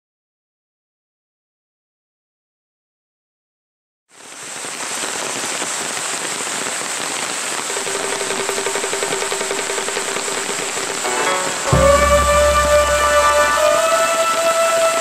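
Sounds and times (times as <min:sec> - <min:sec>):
heavy rain on pond: 0:04.1 - 0:15.0.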